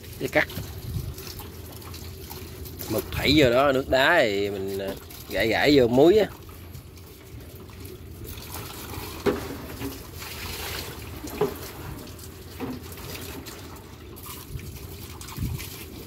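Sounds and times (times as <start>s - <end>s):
water running into plastic bucket: 0.0s - 16.0s
bucket knocks: 9.1s - 10.2s, 10.8s - 13.7s.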